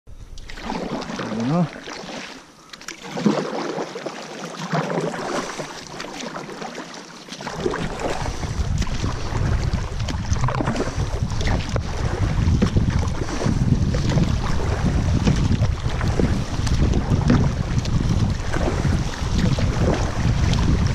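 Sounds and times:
paddle splashing in water: 0:00.3 - 0:20.9
wind on microphone: 0:07.5 - 0:20.9.

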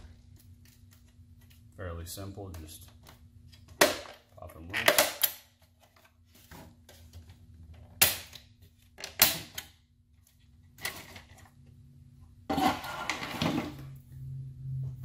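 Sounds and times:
plastic clatter and scrape: 0:12.5 - 0:13.8.

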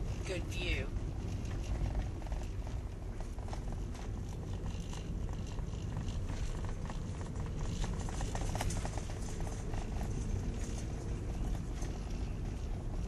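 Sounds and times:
car road and engine rumble: 0:00.0 - 0:13.0.

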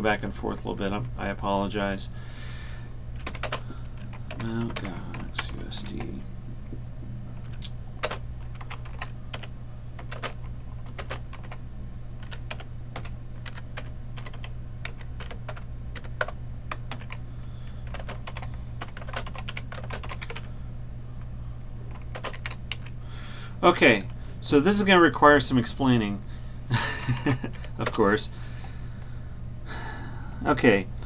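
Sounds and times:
steady low hum: 0:00.0 - 0:31.0
typing on computer keyboard: 0:03.2 - 0:06.1, 0:07.4 - 0:11.6, 0:12.2 - 0:17.2, 0:17.9 - 0:20.5, 0:21.9 - 0:22.9.

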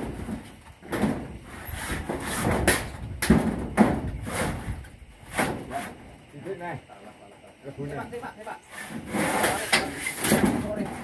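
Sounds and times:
knocks and bangs on metal roofing: 0:00.0 - 0:05.8, 0:09.0 - 0:11.0.

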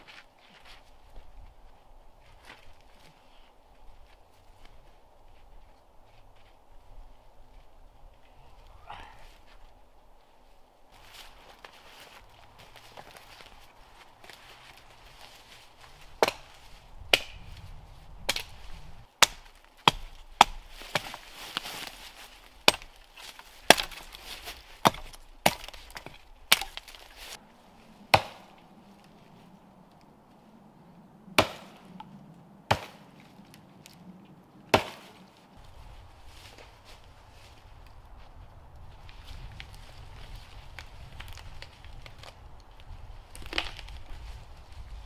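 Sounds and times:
hatchet chopping tree trunk: 0:16.2 - 0:17.5, 0:18.3 - 0:18.6, 0:19.2 - 0:21.7, 0:22.6 - 0:27.2, 0:28.1 - 0:28.6, 0:31.4 - 0:32.1, 0:32.7 - 0:33.1, 0:34.7 - 0:35.2, 0:43.4 - 0:43.9.

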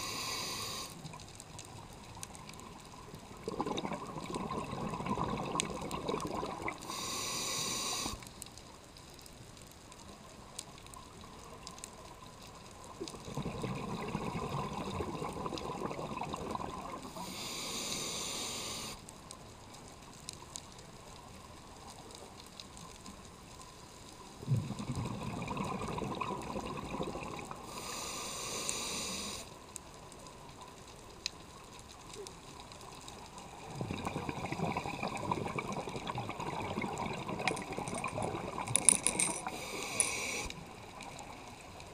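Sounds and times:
regulator inhale hiss: 0:00.0 - 0:01.2, 0:06.8 - 0:08.4, 0:17.1 - 0:19.1, 0:27.6 - 0:29.6, 0:39.4 - 0:40.7
exhaled bubbles burbling: 0:03.2 - 0:06.9, 0:13.0 - 0:17.2, 0:24.4 - 0:27.6, 0:33.5 - 0:39.5.

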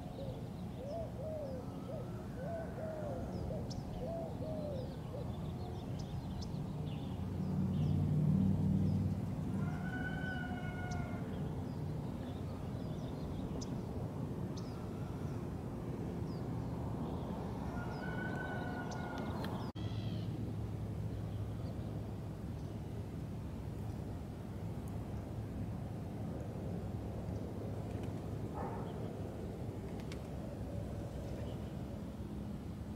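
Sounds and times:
drawn-out pitched call: 0:17.7 - 0:20.3.

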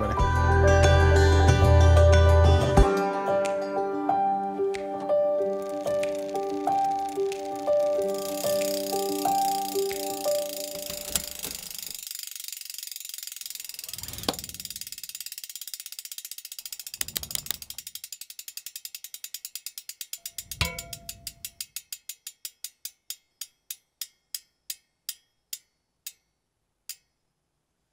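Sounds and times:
bicycle freehub ratcheting clicks: 0:05.4 - 0:27.2.

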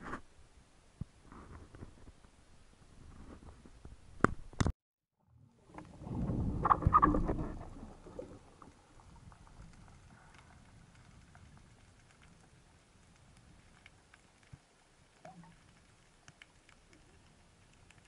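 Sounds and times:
muffled underwater water noise: 0:04.6 - 0:18.0
faint crackling ticks: 0:08.6 - 0:18.0.

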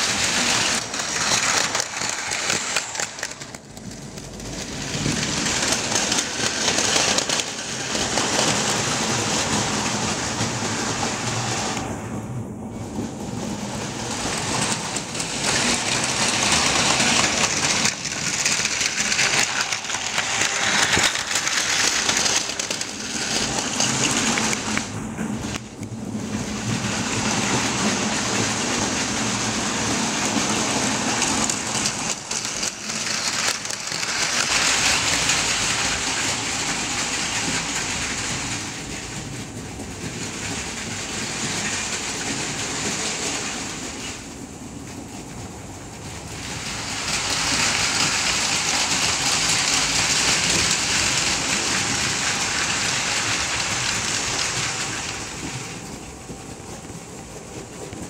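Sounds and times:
toy train motors whirring and rattling: 0:00.0 - 0:11.8, 0:14.0 - 0:25.9, 0:26.6 - 0:38.8, 0:46.3 - 0:55.9.

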